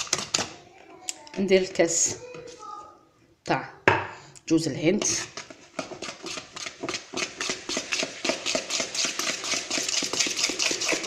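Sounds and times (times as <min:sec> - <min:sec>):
utensil beating batter in bowl: 0:00.0 - 0:00.6, 0:04.9 - 0:11.0.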